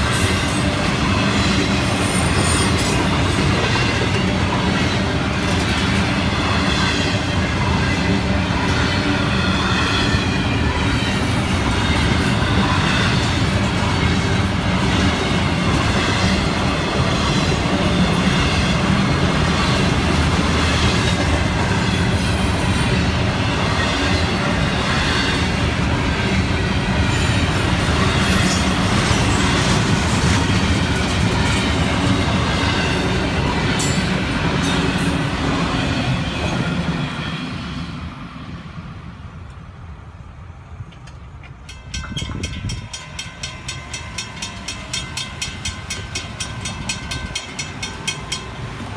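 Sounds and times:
freight train rumble and wheel clatter: 0.0 - 48.9
crossing warning bell ringing: 41.6 - 48.9.

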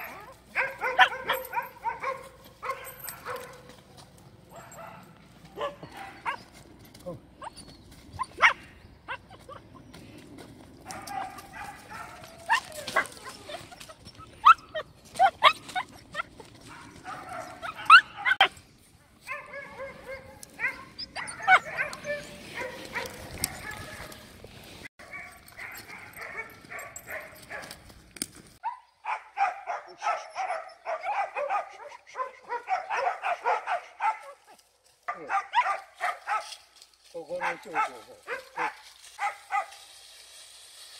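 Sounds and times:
dogs yipping and yelping: 0.0 - 3.7, 5.6 - 6.6, 7.4 - 10.2, 10.8 - 18.6, 19.3 - 24.3, 25.0 - 27.8, 28.6 - 34.6
puppies yelping and whining: 7.4 - 10.0, 12.2 - 16.4, 20.6 - 23.7.

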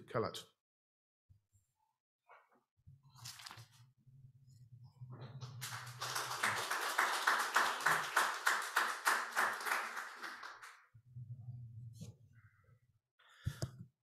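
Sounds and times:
audience clapping: 5.4 - 10.9.

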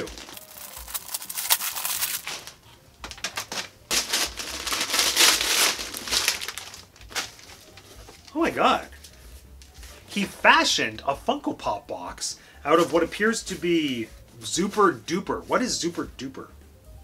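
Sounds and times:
wrapping paper tearing and crinkling: 0.0 - 9.2.

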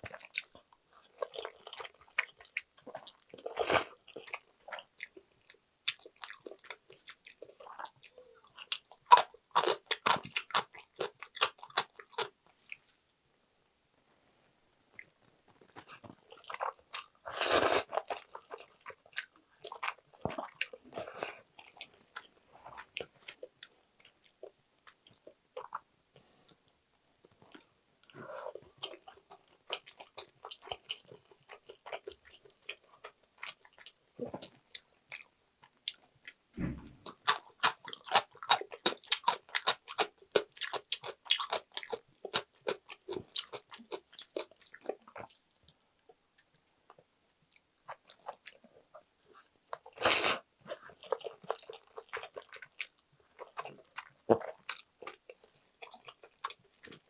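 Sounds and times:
chewing with wet mouth clicks: 4.1 - 12.8, 17.9 - 26.2, 37.0 - 45.4, 50.8 - 57.0
dull low thump: 36.6 - 37.0.

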